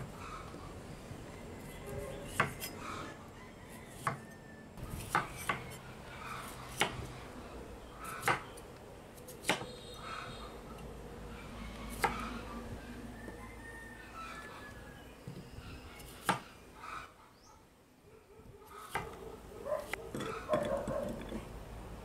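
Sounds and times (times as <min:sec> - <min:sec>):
knife slicing fruit on wooden board: 0:02.3 - 0:02.8, 0:04.9 - 0:07.1, 0:08.1 - 0:08.5, 0:09.2 - 0:09.7.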